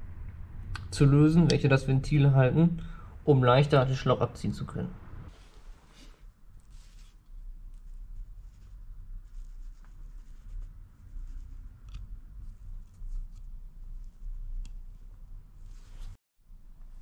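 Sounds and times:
low steady rumble: 0.0 - 17.0
rubber hose rubbing and scratching: 5.3 - 16.2.

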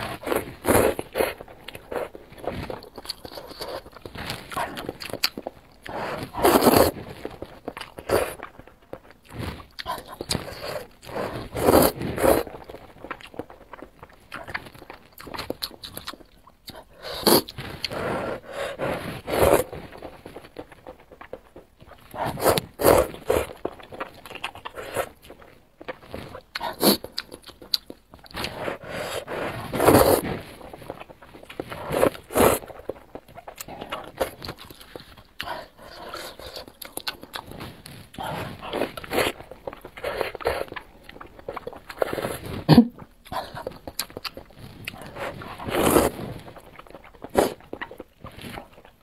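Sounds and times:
soft chewing: 0.0 - 49.0
person slurping noodles: 10.1 - 12.5, 17.0 - 19.7, 28.4 - 30.4, 44.8 - 46.4
noodles being slurped: 28.2 - 33.2, 43.4 - 48.9.

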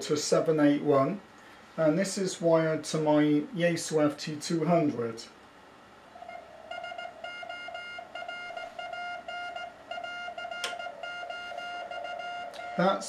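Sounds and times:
morse code beeping tone: 6.2 - 13.0.

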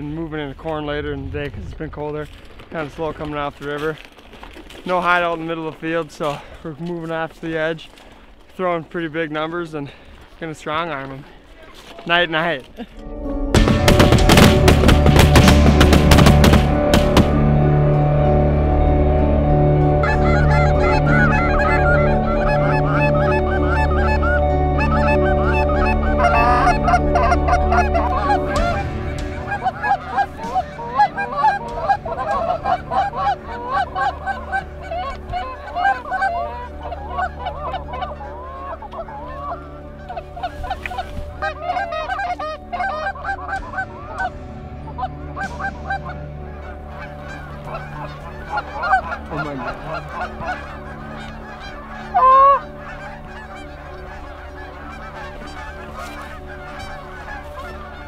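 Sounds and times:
geese honking: 13.6 - 58.0.

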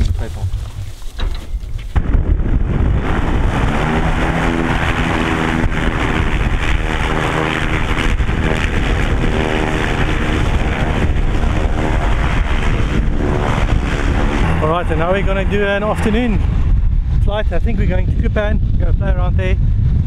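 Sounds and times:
engine running: 0.0 - 18.2
wind noise on microphone: 0.0 - 20.0.

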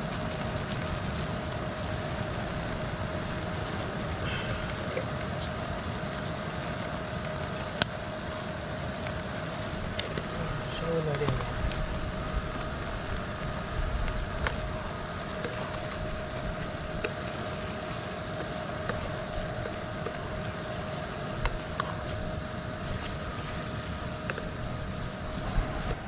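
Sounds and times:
steady rush of noise: 0.0 - 26.0
stove blower whine: 0.0 - 26.0.

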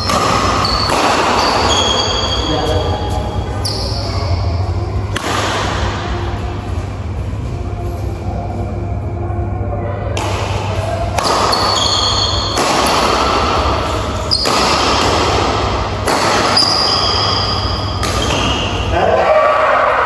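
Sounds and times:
racket hitting shuttlecock: 0.0 - 2.3, 5.1 - 5.9, 10.2 - 18.8
shoes squeaking on court floor: 0.6 - 4.3, 11.5 - 12.5.

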